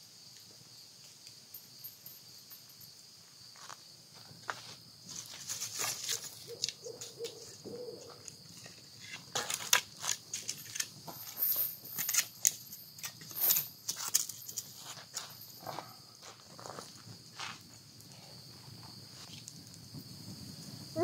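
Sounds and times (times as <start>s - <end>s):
high insect trill: 0.0s - 21.0s
campfire crackling and popping: 19.0s - 20.8s.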